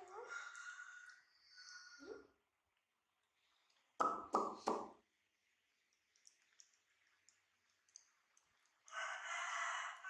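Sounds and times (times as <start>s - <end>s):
monkey chewing wet clicks: 5.9s - 9.0s.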